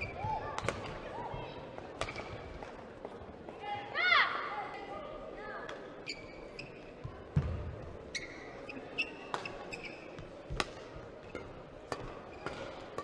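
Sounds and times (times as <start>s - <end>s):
shoes squeaking on court: 6.0s - 10.5s
racket hitting shuttlecock: 10.5s - 13.0s.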